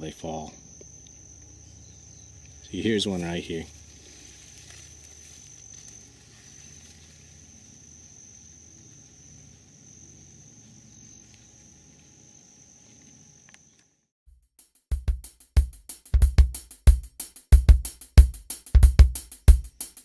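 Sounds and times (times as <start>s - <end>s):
cricket trilling: 0.0s - 14.0s.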